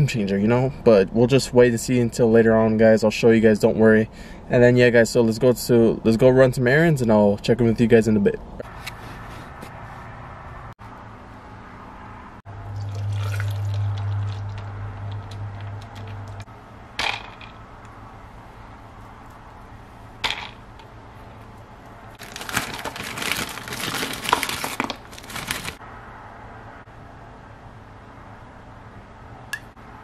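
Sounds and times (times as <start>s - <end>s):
low steady hum: 8.3s - 24.4s
frozen strawberries clattering into cup: 22.2s - 25.8s.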